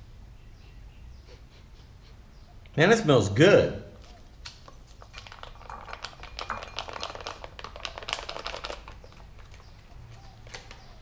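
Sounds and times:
foil pouch crinkling: 0:04.0 - 0:11.0.

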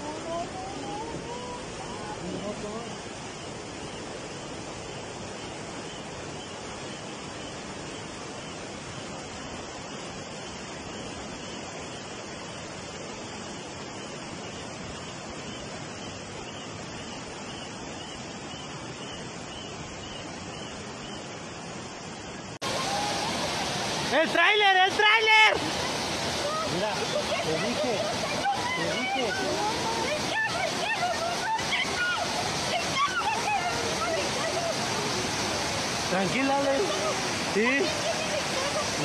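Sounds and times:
floodwater rushing down a street: 0:22.4 - 0:39.0.

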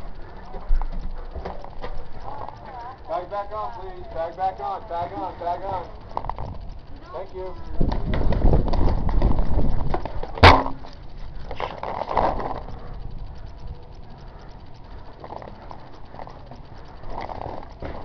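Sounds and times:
sharp crack: 0:10.3 - 0:10.9.

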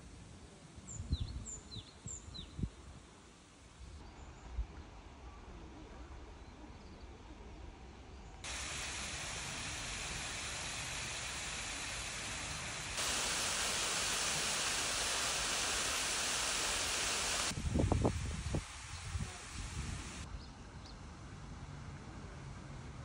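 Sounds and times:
waterfall splashing: 0:08.5 - 0:20.2.

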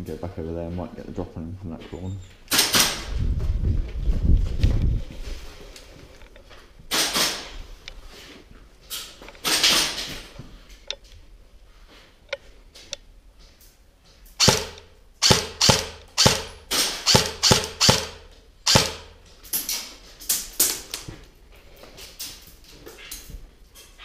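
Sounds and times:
airsoft gun shots echoing: 0:14.4 - 0:19.2.

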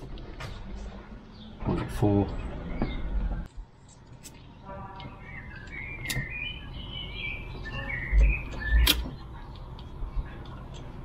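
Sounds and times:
small birds chirping: 0:00.1 - 0:11.0.

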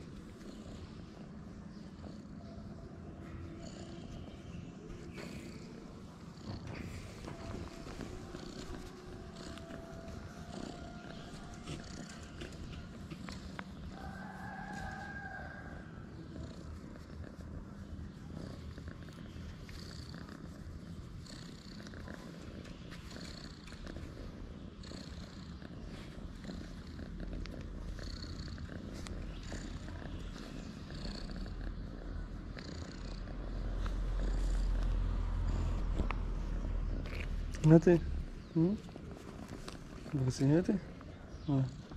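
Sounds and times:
cat purring: 0:00.0 - 0:41.9.

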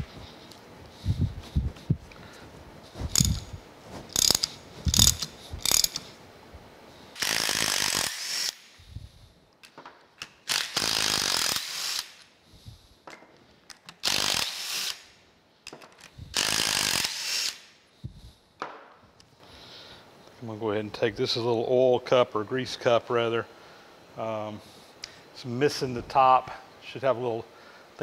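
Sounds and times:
cordless driver spinning bolts: 0:03.0 - 0:06.1, 0:07.2 - 0:08.6, 0:10.2 - 0:12.1, 0:13.9 - 0:15.0
wrench ratchet clicking: 0:03.1 - 0:06.1, 0:07.2 - 0:08.6, 0:10.2 - 0:12.3, 0:13.8 - 0:15.0, 0:16.4 - 0:17.6.

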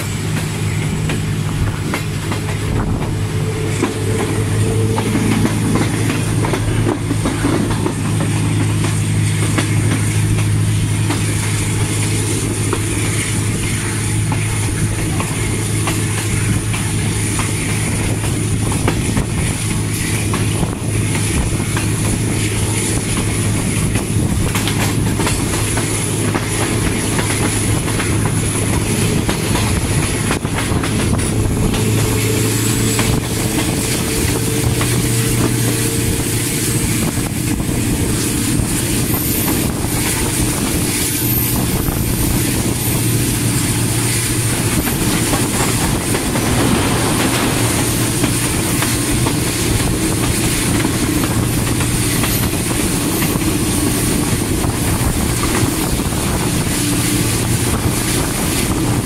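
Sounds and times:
diesel locomotive running: 0:00.0 - 0:59.0.

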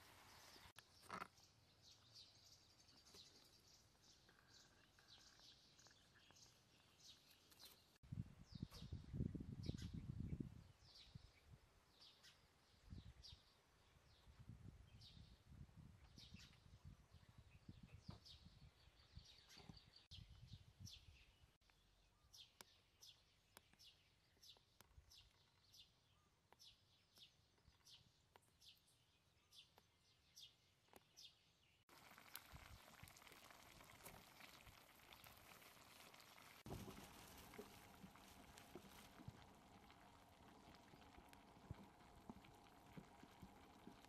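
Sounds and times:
wok food sizzling hiss: 0:00.0 - 0:00.7
faint bird chirping: 0:00.0 - 0:14.3
wind rumble on microphone: 0:08.0 - 0:11.6, 0:12.8 - 0:13.4, 0:14.1 - 0:21.3.

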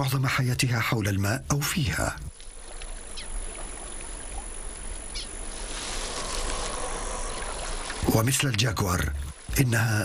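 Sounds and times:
water sloshing: 0:01.7 - 0:10.0
plants rustling: 0:05.2 - 0:09.5.

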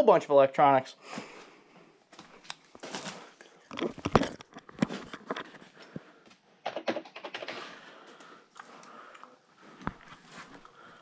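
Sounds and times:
computer equipment knocking and clattering: 0:06.6 - 0:07.7.

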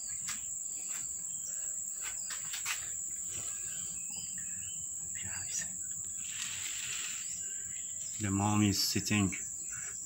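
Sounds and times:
insects droning: 0:00.0 - 0:10.0.

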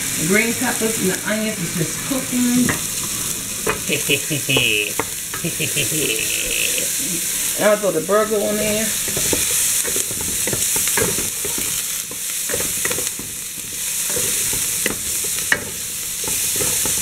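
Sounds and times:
vegetables sizzling in a pot: 0:00.0 - 0:17.0
spoon knocking on pot: 0:08.6 - 0:17.0.

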